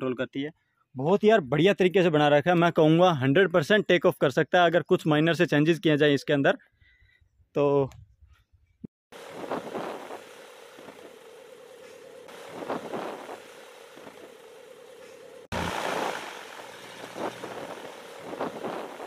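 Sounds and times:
ultralight aircraft engine droning: 9.2 - 19.0.

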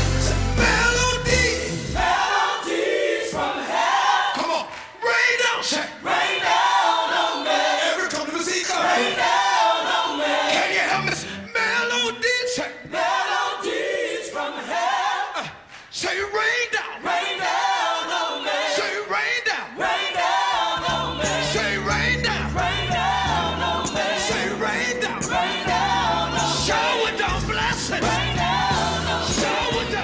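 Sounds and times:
male voices singing gospel in harmony: 0.0 - 4.8, 5.6 - 30.0
instrumental backing: 20.3 - 30.0.

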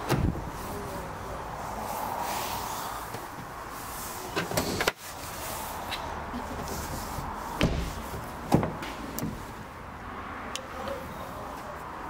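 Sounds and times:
short knocks and thumps: 7.6 - 9.4.

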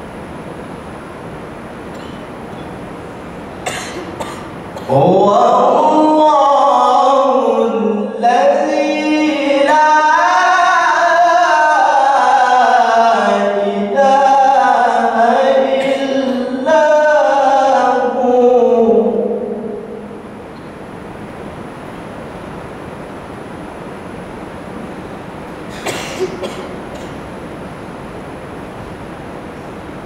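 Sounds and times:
man reciting melodically: 4.9 - 20.0.

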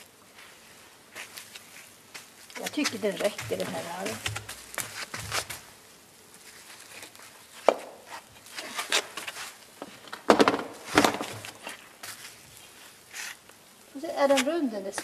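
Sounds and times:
stones knocking and scraping: 2.5 - 5.7.

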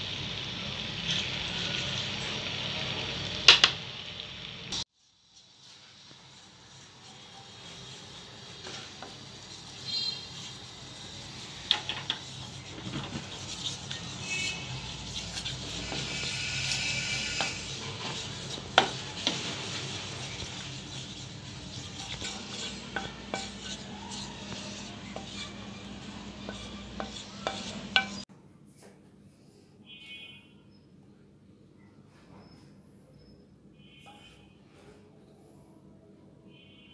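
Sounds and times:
caramel bubbling and sizzling: 0.0 - 28.3
wooden spoon scraping steel bowl: 7.6 - 28.2.

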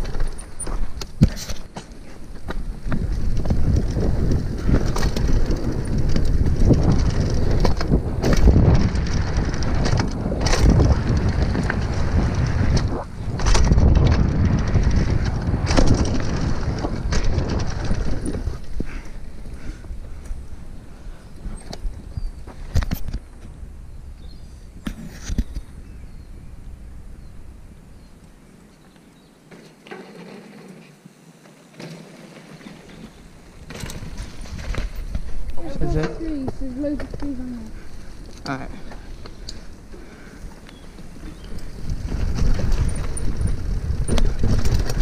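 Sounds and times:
bike knocks and rattles: 0.0 - 20.6, 29.5 - 30.9, 31.5 - 40.2, 40.8 - 45.0
tyres rumbling over dirt: 0.0 - 24.3, 29.5 - 45.0
wind buffeting microphone: 2.2 - 28.1, 33.5 - 45.0.

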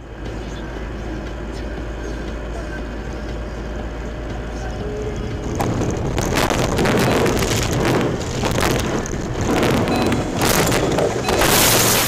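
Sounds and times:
car ploughing through snow: 5.5 - 12.0.

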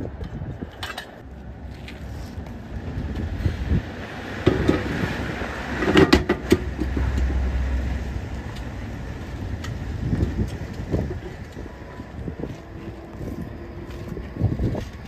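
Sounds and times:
low rumble: 1.2 - 15.0
tire wheel knocks and clanks: 4.3 - 12.6.

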